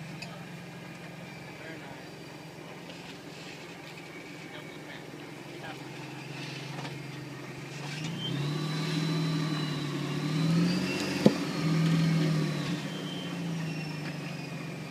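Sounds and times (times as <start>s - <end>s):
supercharger whine: 0.0s - 14.9s
engine revving: 4.1s - 14.9s.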